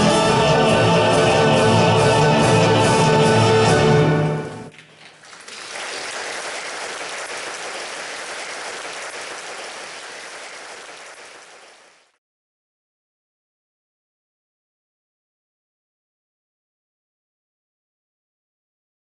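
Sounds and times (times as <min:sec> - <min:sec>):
audience applauding: 0:04.7 - 0:12.2.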